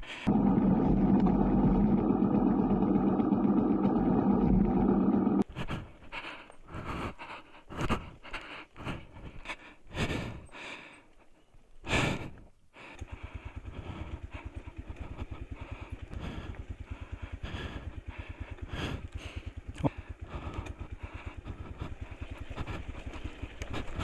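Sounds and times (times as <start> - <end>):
heavy hard breathing: 0.0 - 0.8, 3.1 - 24.0
motorcycle engine idling: 0.2 - 5.4, 12.1 - 24.0.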